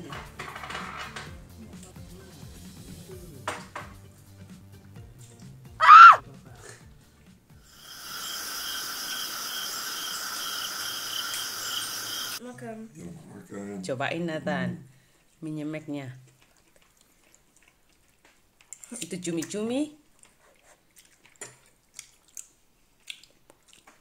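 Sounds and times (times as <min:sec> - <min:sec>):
cricket chirp effect: 0:07.8 - 0:12.4.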